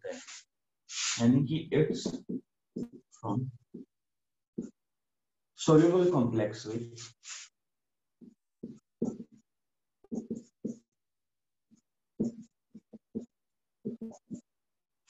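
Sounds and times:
marker squeaking on whiteboard: 8.6s - 9.4s, 10.0s - 10.9s, 11.7s - 14.5s.

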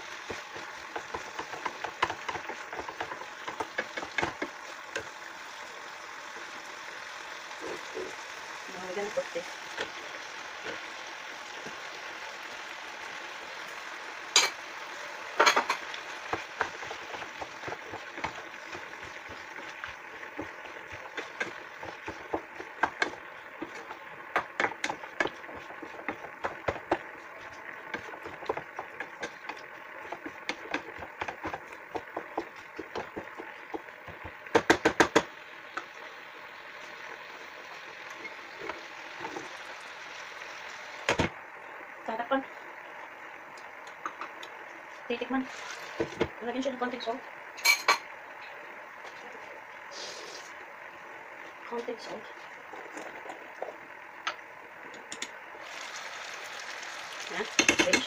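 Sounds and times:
cooking hiss: 0.0s - 58.0s
wooden spoon scraping frying pan: 0.2s - 4.8s, 15.4s - 34.6s.

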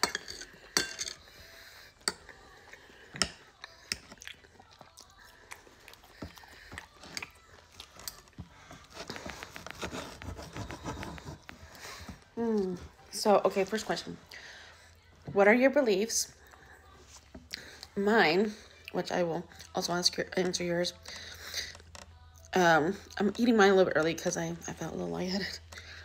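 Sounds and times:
cutlery clinking on a plate: 0.0s - 1.3s
person chewing: 2.0s - 11.8s.

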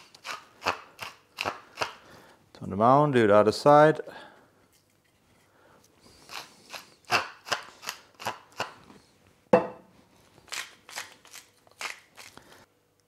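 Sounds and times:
pepper mill grinding: 0.0s - 2.0s, 6.1s - 8.8s, 10.4s - 12.5s
knock on counter: 9.6s - 9.8s.

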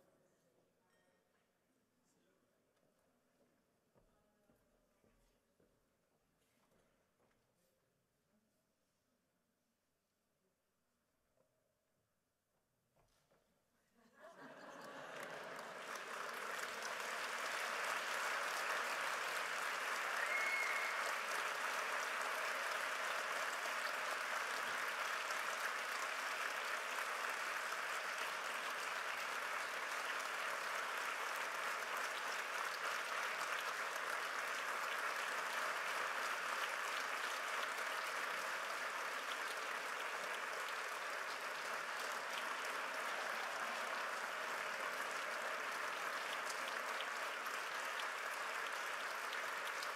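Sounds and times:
audience applause: 14.4s - 49.9s.

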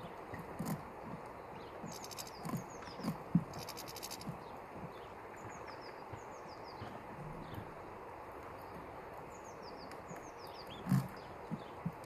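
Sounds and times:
birds pecking seed: 0.0s - 6.0s
finches twittering: 1.6s - 7.6s.

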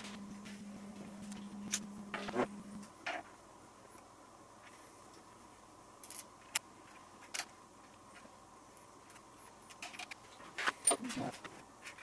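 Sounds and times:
faint steady tone: 0.0s - 12.0s
room hiss: 0.0s - 12.0s
metallic clicks of small parts: 6.0s - 7.5s, 9.0s - 11.0s.

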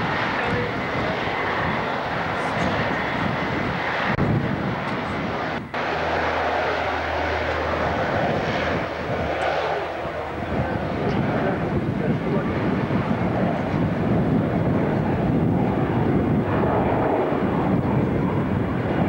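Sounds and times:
turboprop engines at high power: 0.0s - 19.0s.

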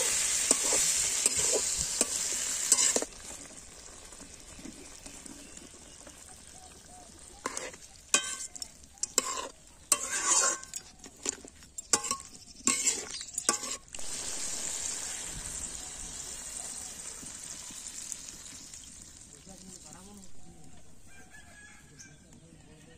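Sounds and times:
metal spatula scraping wok: 0.0s - 3.5s, 7.3s - 15.7s
food sizzling in oil: 0.0s - 20.8s.

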